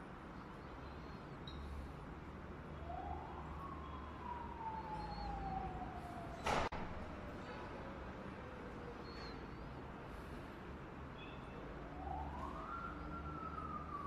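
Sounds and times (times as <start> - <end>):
faint siren-like wail: 2.4 - 10.3, 11.3 - 14.0.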